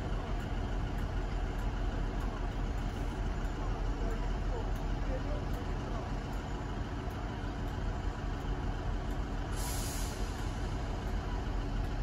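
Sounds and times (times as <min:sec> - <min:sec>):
train diesel engine idling: 0:00.0 - 0:12.0
air brakes hiss: 0:09.5 - 0:10.8.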